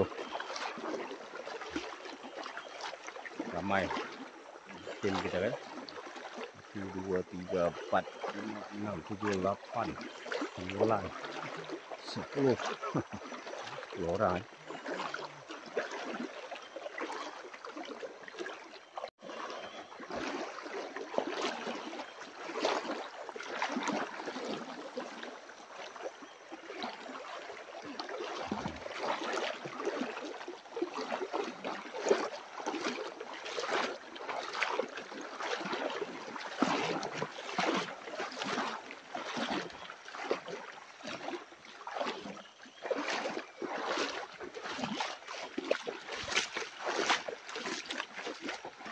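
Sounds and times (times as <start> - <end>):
river water rushing: 0.0 - 18.5, 19.2 - 42.3, 42.9 - 48.9.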